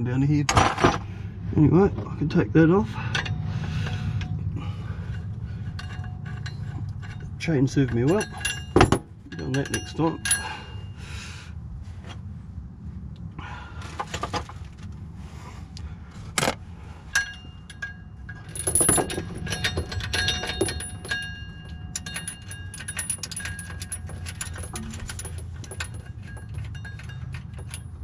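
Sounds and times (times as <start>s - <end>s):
low hum: 0.9s - 28.0s
steel chain clinking and rattling: 3.0s - 11.0s, 17.1s - 28.0s.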